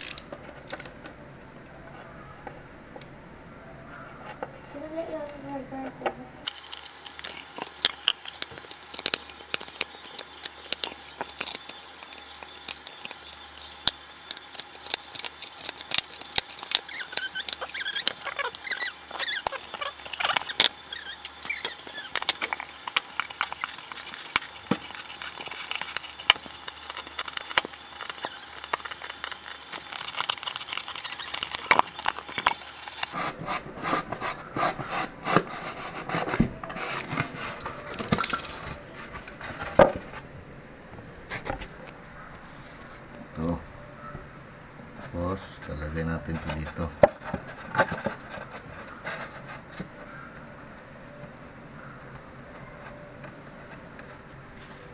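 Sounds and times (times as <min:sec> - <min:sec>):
knife scraping through foam: 0:07.3 - 0:38.4.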